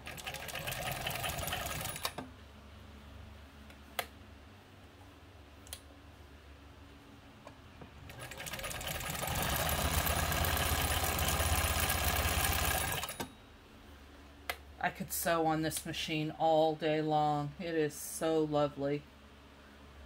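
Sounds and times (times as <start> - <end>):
sewing machine clicks: 0.0 - 2.2, 8.1 - 13.3
sewing machine running: 0.0 - 2.2, 8.1 - 13.3.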